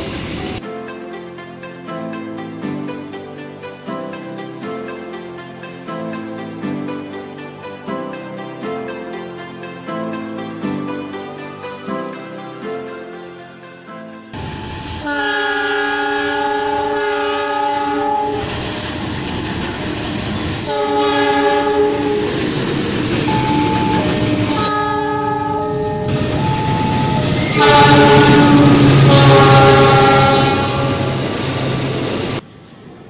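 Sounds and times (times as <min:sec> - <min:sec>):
train rumble and wheel clatter: 0:00.0 - 0:00.6, 0:14.3 - 0:15.1, 0:16.5 - 0:33.0
locomotive air horns: 0:14.7 - 0:18.5, 0:20.6 - 0:22.5, 0:23.3 - 0:31.3.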